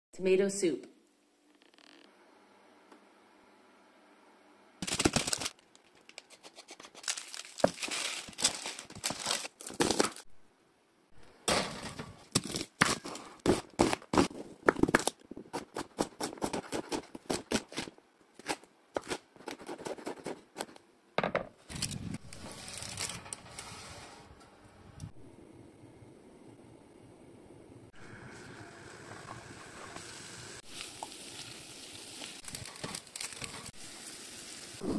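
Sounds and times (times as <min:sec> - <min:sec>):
rustling handling noises: 0:05.1 - 0:10.2.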